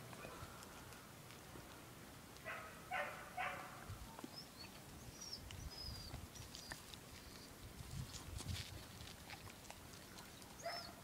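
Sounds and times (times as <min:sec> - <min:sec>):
dog barking: 0:02.5 - 0:03.8, 0:10.6 - 0:11.0.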